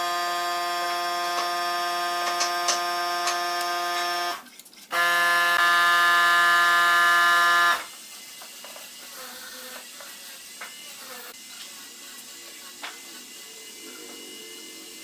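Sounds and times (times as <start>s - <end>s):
electronic buzzing tone: 0.0s - 7.9s.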